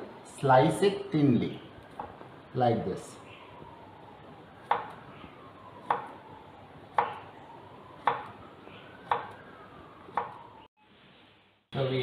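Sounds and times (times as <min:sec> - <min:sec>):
knife chopping on wooden board: 0:04.6 - 0:05.0, 0:05.8 - 0:06.1, 0:06.9 - 0:07.2, 0:08.0 - 0:08.3, 0:09.0 - 0:09.4, 0:10.1 - 0:10.4.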